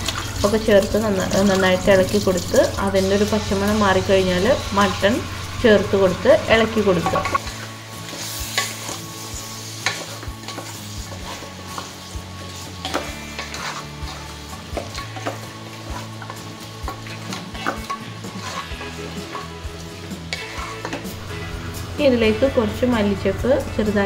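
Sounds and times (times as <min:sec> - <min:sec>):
meat sizzling: 0:00.0 - 0:24.0
spatula scraping pot: 0:06.1 - 0:19.7, 0:20.3 - 0:21.3.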